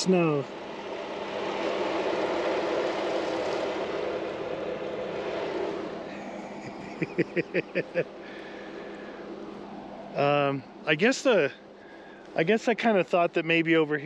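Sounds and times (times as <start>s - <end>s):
man laughing: 6.1s - 8.5s.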